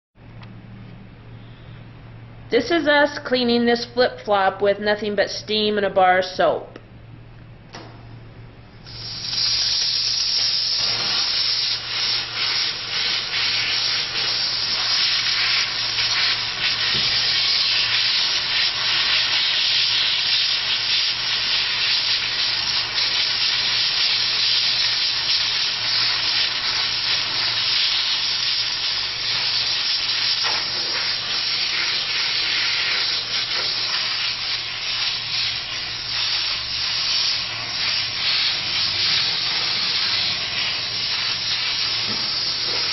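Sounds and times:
steam cleaner hissing: 0:08.8 - 0:42.9.

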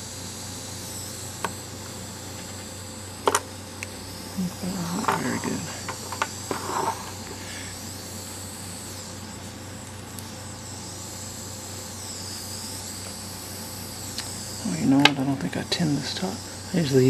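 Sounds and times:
electrical hum and hiss: 0:00.0 - 0:17.0
small parts clicking and rustling: 0:05.0 - 0:07.4.

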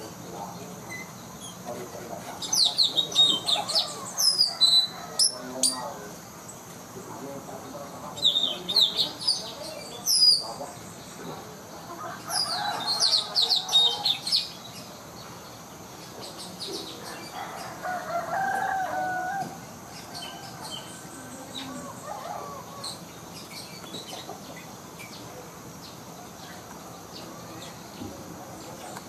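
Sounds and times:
parrot chirping: 0:02.4 - 0:05.9.

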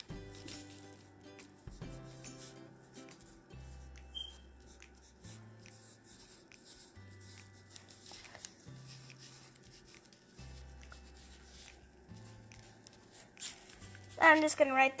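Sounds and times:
pencil writing on paper: 0:00.0 - 0:14.5
quiet background music: 0:00.0 - 0:15.0.

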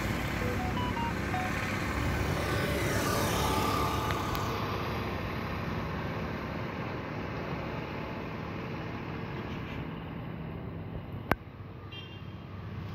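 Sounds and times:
motor scooter passing by: 0:01.4 - 0:05.0.

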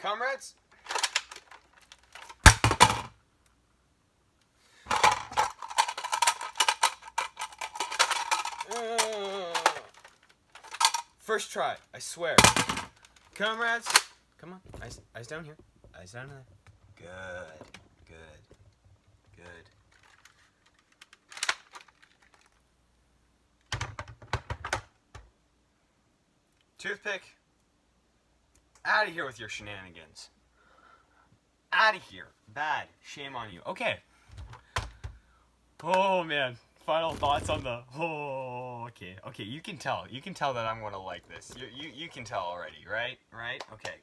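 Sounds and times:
parts thudding on table: 0:02.3 - 0:03.2, 0:12.4 - 0:13.1
person humming: 0:08.7 - 0:09.9.

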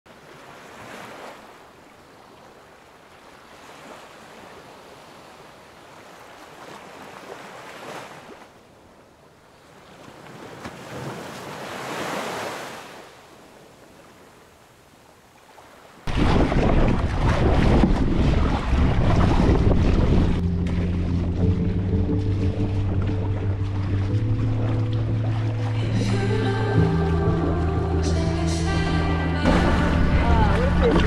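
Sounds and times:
sea waves washing in: 0:09.6 - 0:31.0.

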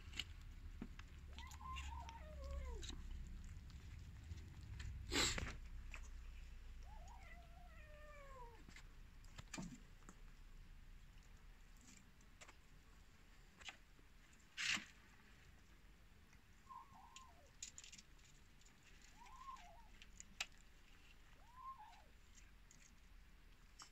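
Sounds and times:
cats meowing: 0:01.2 - 0:05.6, 0:06.7 - 0:08.8, 0:16.7 - 0:17.6, 0:19.0 - 0:20.0, 0:21.2 - 0:22.2.

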